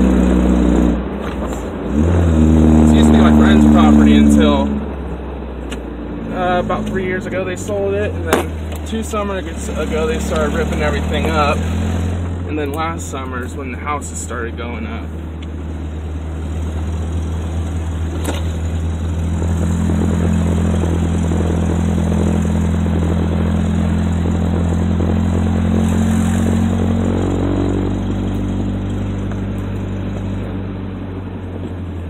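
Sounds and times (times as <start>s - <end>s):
pickup truck engine running: 6.4s - 32.0s.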